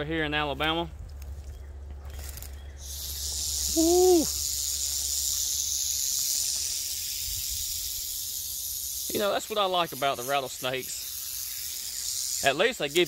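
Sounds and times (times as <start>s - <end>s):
rattlesnake rattling: 2.0s - 13.0s
short voiced exclamation: 3.7s - 4.3s.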